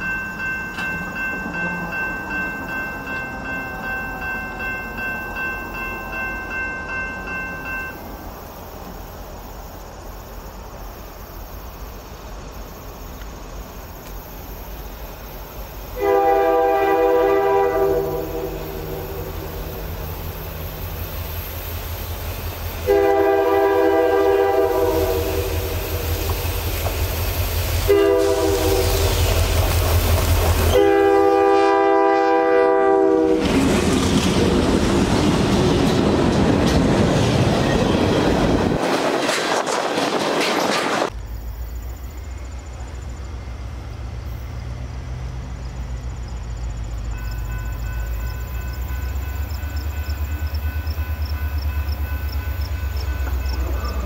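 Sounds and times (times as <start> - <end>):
train rail noise: 0.0 - 54.0
locomotive air horn: 16.0 - 19.6, 22.8 - 26.2, 27.8 - 29.4, 30.7 - 33.5.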